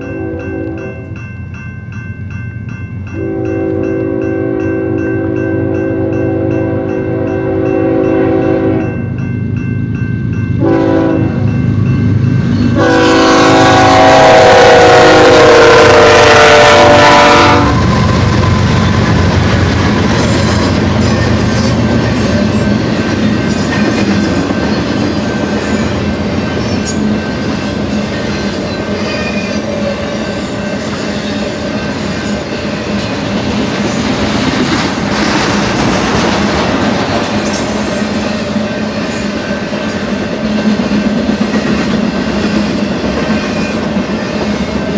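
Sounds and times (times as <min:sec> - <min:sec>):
train horn blasts: 0:00.0 - 0:01.0, 0:03.2 - 0:09.0, 0:10.6 - 0:11.5, 0:12.7 - 0:17.9
crossing bell ringing: 0:00.0 - 0:14.7, 0:17.4 - 0:34.2
train cars rumbling over rails: 0:00.0 - 0:44.9.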